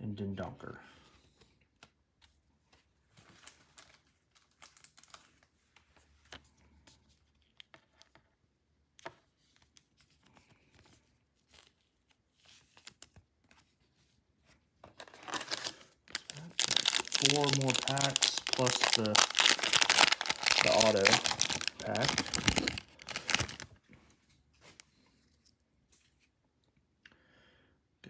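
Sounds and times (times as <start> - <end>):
trading cards rustling: 14.8 - 23.8.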